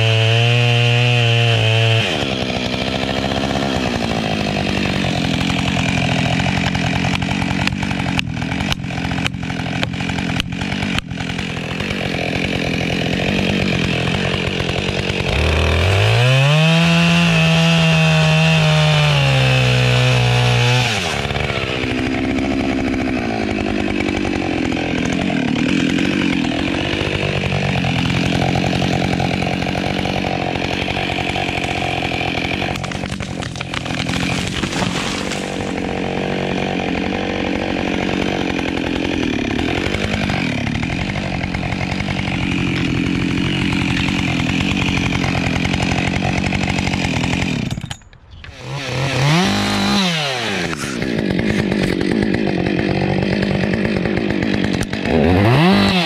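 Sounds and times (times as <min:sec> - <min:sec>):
chainsaw cutting wood: 0:00.0 - 0:56.0
chainsaw revving from idle: 0:00.0 - 0:56.0.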